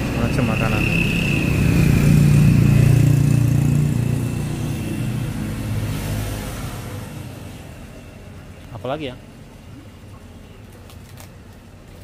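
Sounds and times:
vehicle engine passing by: 0:00.0 - 0:07.9.

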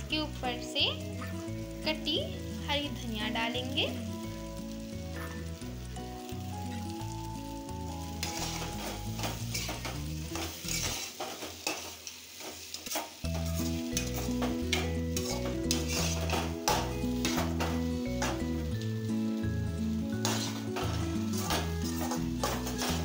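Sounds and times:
background music: 0:00.0 - 0:11.0, 0:13.2 - 0:23.0
oil sizzling: 0:00.0 - 0:23.0
spatula scraping a pan: 0:08.2 - 0:18.5, 0:20.1 - 0:23.0.

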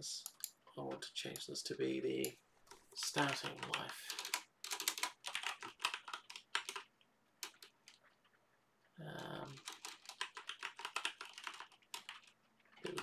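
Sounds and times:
typing on computer keyboard: 0:02.7 - 0:08.2, 0:09.2 - 0:13.0.

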